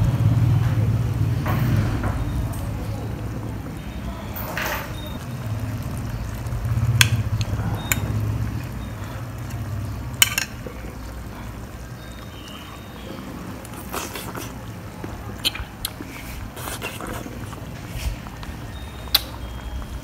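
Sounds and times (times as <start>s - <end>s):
spoon stirring thick sauce: 5.2s - 19.8s.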